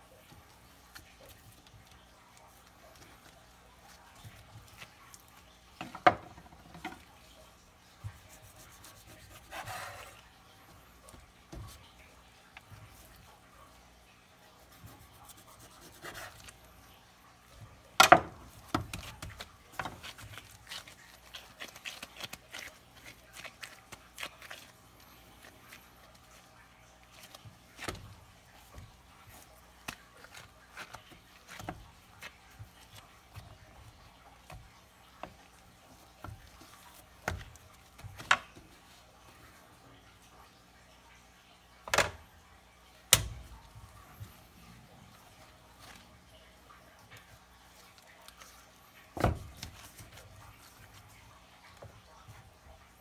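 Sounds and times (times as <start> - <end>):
meat rubbing when handled: 6.6 - 17.8, 18.4 - 39.8
knife cutting meat: 14.7 - 16.6.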